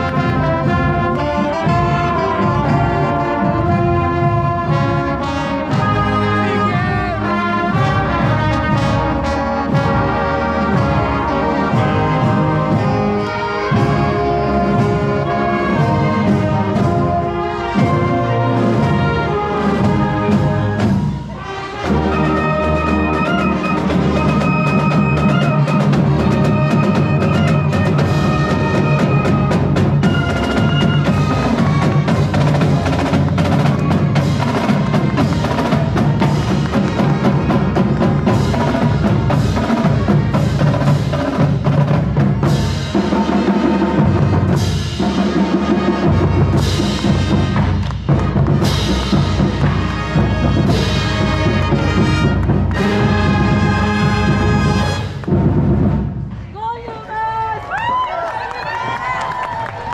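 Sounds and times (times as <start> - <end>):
brass band playing: 0.0 - 56.4.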